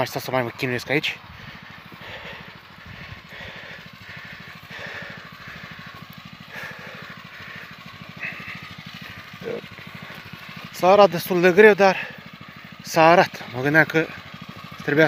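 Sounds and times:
motor hoe engine idling: 0.0 - 15.0.

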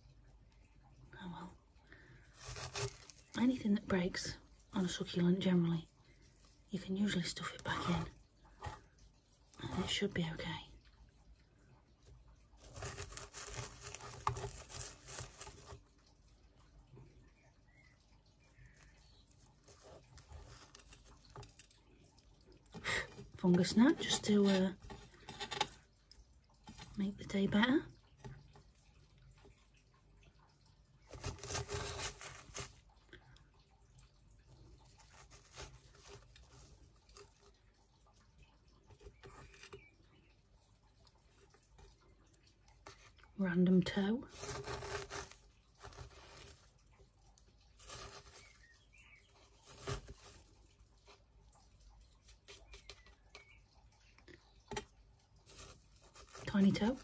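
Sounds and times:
fingers clicking and rustling in soil: 2.3 - 3.6, 12.6 - 15.9, 18.6 - 22.6, 44.3 - 53.6, 54.3 - 57.0
stick scratching in gritty soil: 2.4 - 3.4, 12.6 - 15.8, 31.1 - 32.8, 44.3 - 46.6, 55.5 - 57.0.

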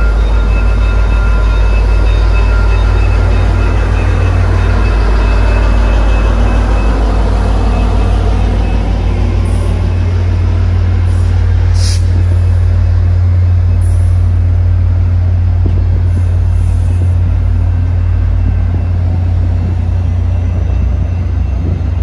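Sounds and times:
diesel locomotive engine: 0.0 - 22.0
train wheels rumbling on rails: 0.0 - 22.0.

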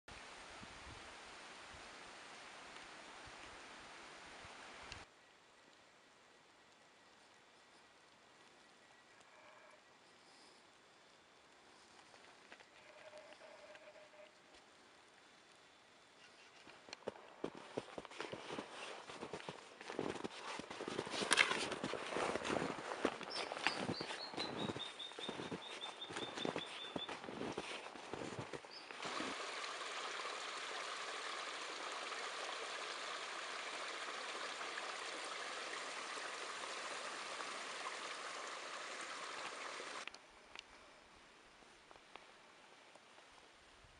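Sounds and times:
creek trickling over stones: 0.1 - 5.1, 16.8 - 40.2
footsteps crunching in snow: 17.0 - 29.3.

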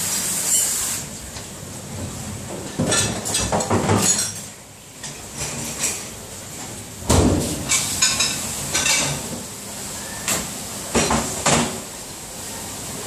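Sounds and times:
cups and racks clinking: 2.0 - 6.2, 7.2 - 9.4, 10.0 - 11.8.

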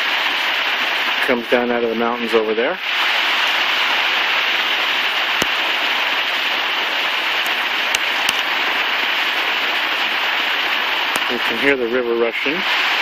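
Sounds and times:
river rushing over cobbles: 3.0 - 11.9.

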